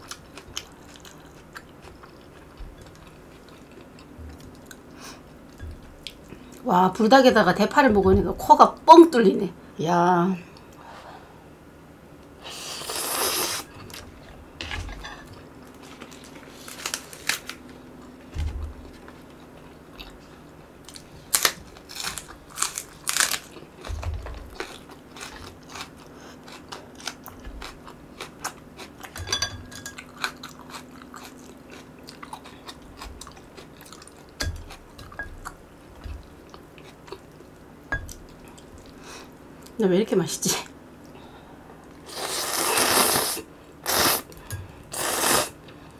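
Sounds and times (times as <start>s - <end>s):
chewing with crisp crunches: 0.0s - 6.6s, 18.8s - 29.3s, 29.9s - 39.0s
noodle slurp: 42.1s - 44.3s, 45.0s - 45.5s.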